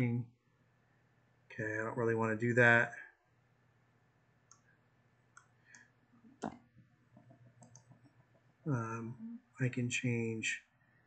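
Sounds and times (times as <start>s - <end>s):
mouse and keyboard clicks: 7.2s - 8.1s.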